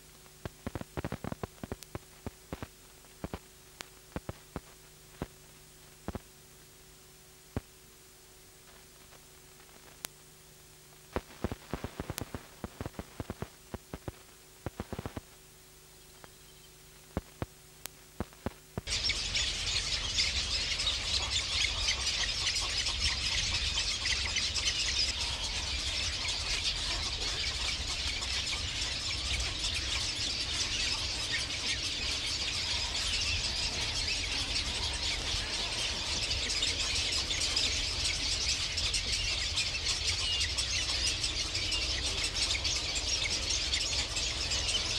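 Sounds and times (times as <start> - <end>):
crackles: 0.0 - 44.9
tape hiss and hum: 0.0 - 44.9
many birds chirping: 11.2 - 14.1, 18.8 - 44.9.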